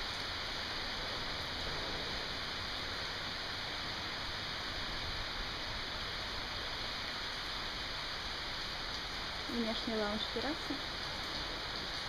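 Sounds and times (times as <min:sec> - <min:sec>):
heavy rain hissing: 0:00.0 - 0:12.0.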